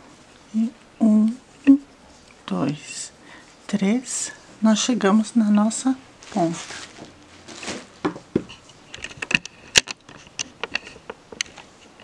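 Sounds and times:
yarn rustling: 5.6 - 8.4.

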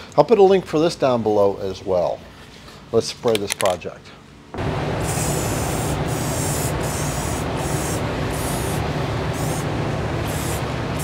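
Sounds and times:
aerosol can spraying hiss: 5.0 - 11.0.

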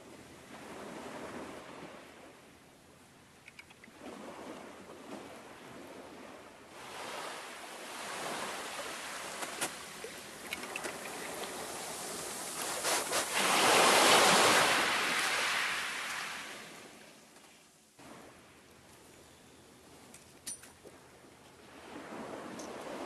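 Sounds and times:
sharp ticks: 3.4 - 3.9
waves washing on shingle: 6.8 - 16.5.

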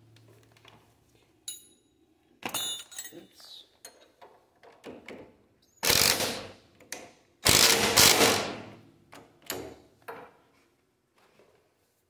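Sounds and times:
impact wrench hammering: 5.8 - 6.6, 7.4 - 8.7.

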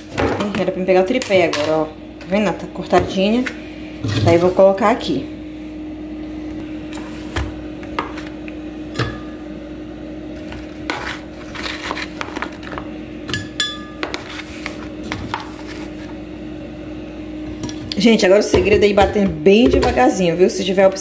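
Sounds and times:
steady hum: 0.0 - 21.0
metal spoon scraping frozen fruit: 10.9 - 12.8.

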